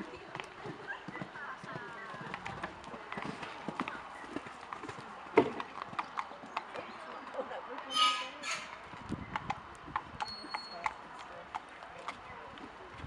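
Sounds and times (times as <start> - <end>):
horse hoofbeats on sand: 0.0 - 6.9.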